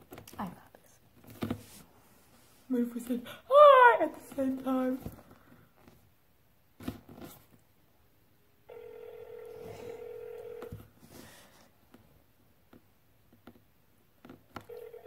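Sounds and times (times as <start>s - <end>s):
phone ringback tone: 8.7s - 10.7s, 14.6s - 15.0s.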